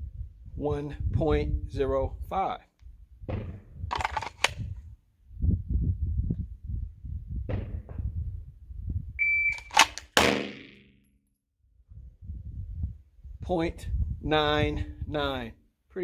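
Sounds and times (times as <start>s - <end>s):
gun drawn from holster: 3.9s - 4.8s, 9.5s - 10.2s
electronic timer beep: 9.2s - 9.7s
handgun shots: 9.6s - 10.8s.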